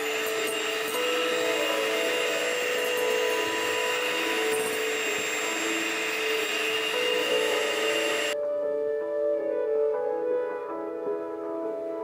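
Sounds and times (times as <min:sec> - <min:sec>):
electric hand mixer whirring: 0:00.0 - 0:08.4
soft piano music: 0:00.0 - 0:12.0.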